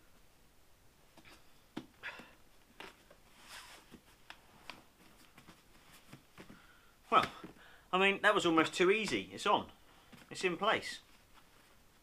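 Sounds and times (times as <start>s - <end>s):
clicks and rustles handling helmet: 2.6s - 7.6s.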